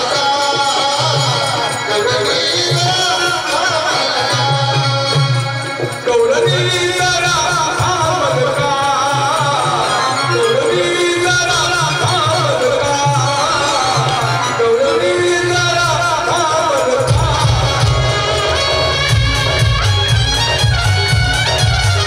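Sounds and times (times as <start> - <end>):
folk singing: 0.0 - 18.9
steady hand drum beat: 15.8 - 22.0.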